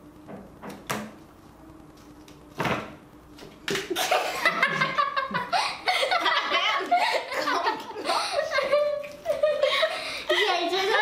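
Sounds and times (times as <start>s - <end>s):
girls laughing: 3.9s - 11.0s.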